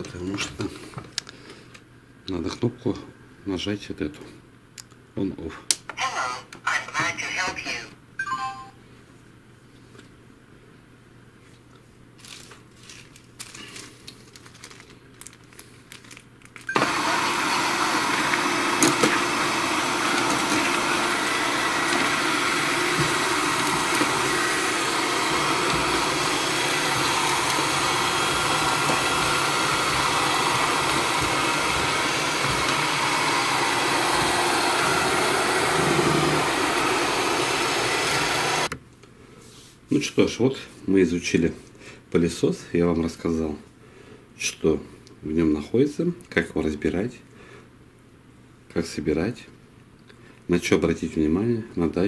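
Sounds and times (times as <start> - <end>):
robot vacuum motors running: 16.7 - 38.7.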